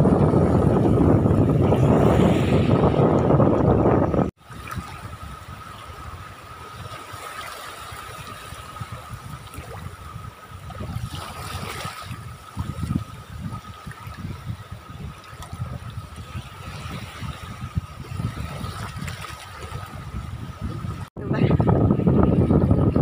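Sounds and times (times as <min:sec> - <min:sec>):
wind buffeting microphone: 0:00.0 - 0:23.0
sea waves washing onto beach: 0:04.3 - 0:21.2.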